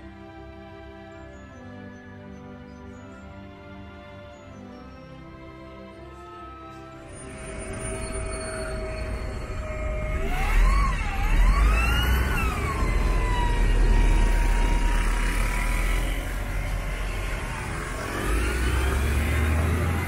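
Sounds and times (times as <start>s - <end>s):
vehicle engine accelerating: 6.5s - 20.0s.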